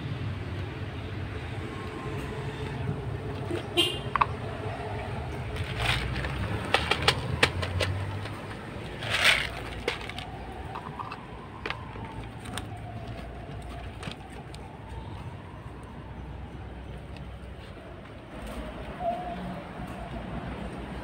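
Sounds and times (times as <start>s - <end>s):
cat crunching kibble: 5.5s - 11.2s
kibble rattling onto concrete: 5.5s - 12.6s.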